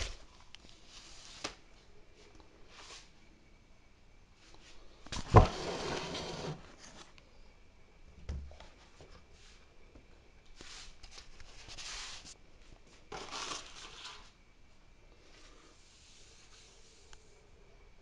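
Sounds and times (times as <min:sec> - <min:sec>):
plastic packaging rustling: 0:13.1 - 0:14.3.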